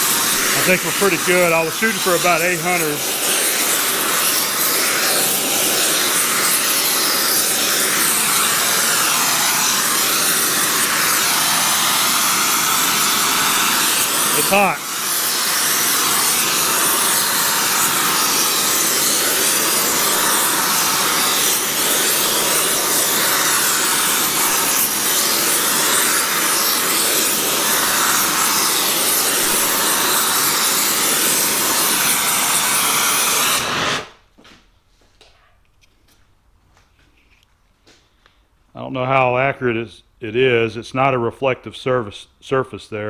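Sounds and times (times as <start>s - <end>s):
torch flame hissing: 0.0s - 34.2s.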